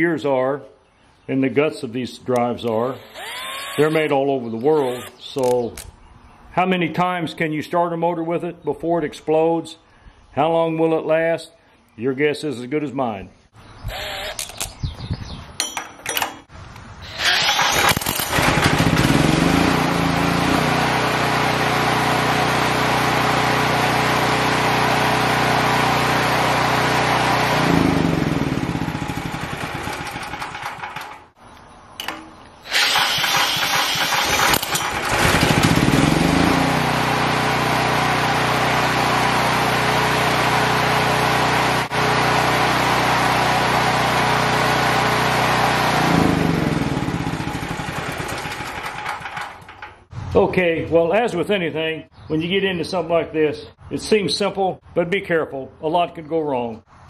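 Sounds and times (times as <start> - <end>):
cordless drill cranking engine: 2.9 - 5.9, 13.9 - 14.8, 17.0 - 31.3, 32.6 - 50.0
engine winding down: 3.0 - 4.1, 17.0 - 31.3, 32.6 - 50.4
generator engine running: 3.0 - 4.1, 17.1 - 31.4, 32.0 - 50.4.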